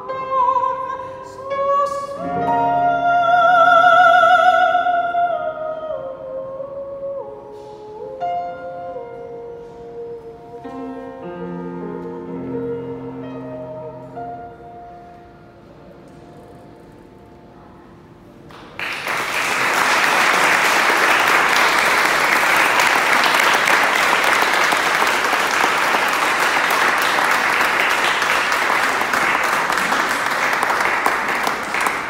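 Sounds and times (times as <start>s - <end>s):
audience applause: 18.5s - 32.0s.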